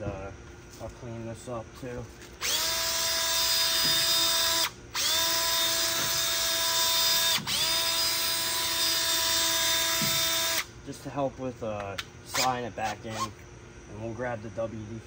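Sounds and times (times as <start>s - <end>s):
drill spinning wire brush: 2.3s - 10.7s, 12.3s - 13.4s.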